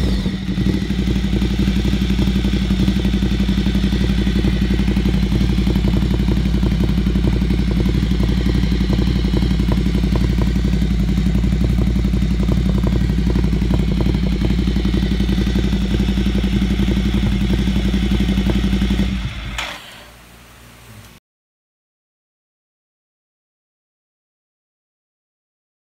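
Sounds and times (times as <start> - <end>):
motorcycle engine idling: 0.0 - 20.1.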